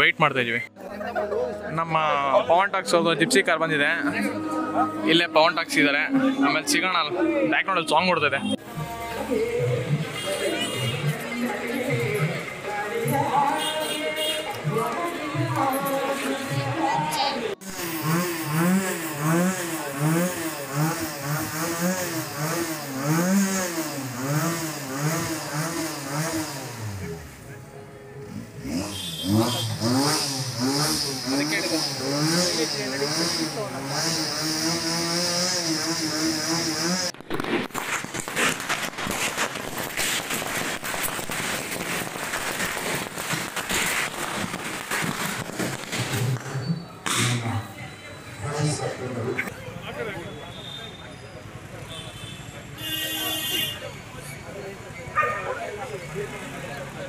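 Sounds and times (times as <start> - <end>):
firecrackers popping and crackling: 8.6 - 27.5, 28.6 - 47.9
motorcycle engine revving: 17.5 - 27.6, 28.2 - 37.3.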